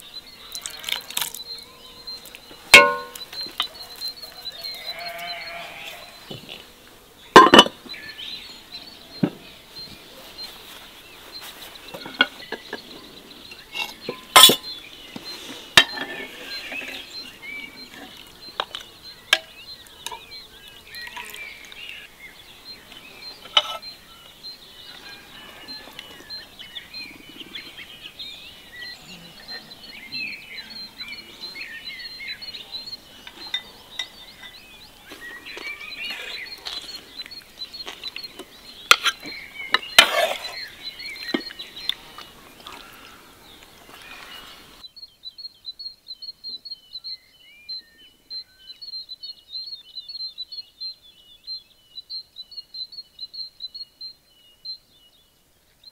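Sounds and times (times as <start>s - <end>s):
birds chirping: 0.0s - 55.9s
cutlery clinking on plates: 2.7s - 3.7s, 7.4s - 7.8s, 13.8s - 14.7s, 15.8s - 17.0s.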